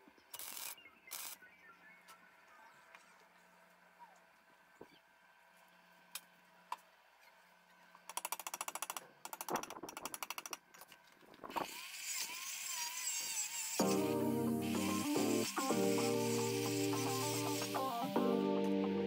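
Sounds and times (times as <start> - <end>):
rotary tool grinding steel: 11.5 - 18.1.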